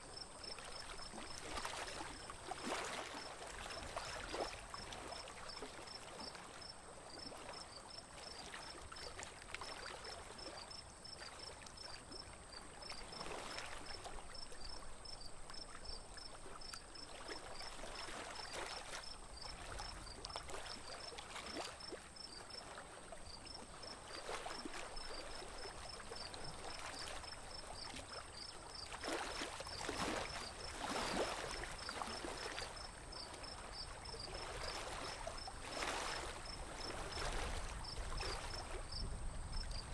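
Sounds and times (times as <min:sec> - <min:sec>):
water splashing against wooden boat: 0:23.8 - 0:38.9.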